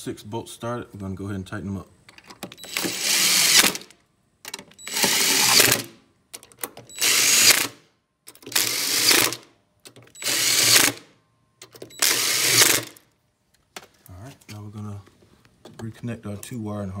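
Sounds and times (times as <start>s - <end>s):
impact driver hammering bolts: 2.1s - 3.9s, 4.5s - 13.0s.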